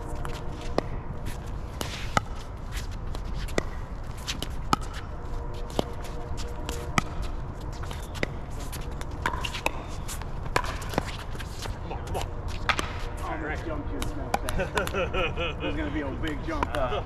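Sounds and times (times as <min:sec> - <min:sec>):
footsteps shuffling on court: 0:00.0 - 0:14.2.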